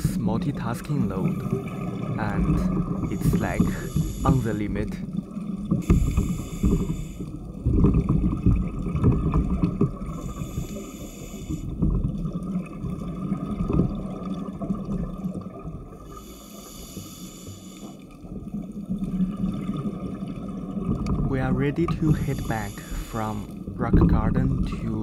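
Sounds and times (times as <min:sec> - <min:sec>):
rushing exhaust bubbles: 0:00.0 - 0:10.8
underwater motor hum: 0:00.0 - 0:25.0.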